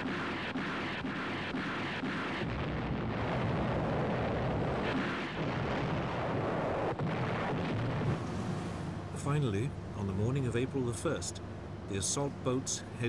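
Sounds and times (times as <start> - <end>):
sharp cracks of gunfire: 0.0 - 8.2
heavy rumble of explosions: 0.0 - 9.4.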